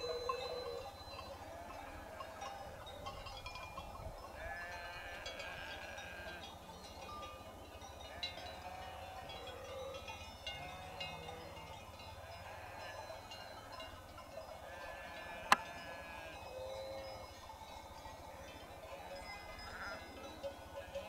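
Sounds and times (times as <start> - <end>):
bell-like clinks: 0.0 - 6.0, 6.8 - 21.0
sheep bleating: 4.4 - 6.4, 8.6 - 9.3, 12.3 - 13.1, 14.7 - 16.4.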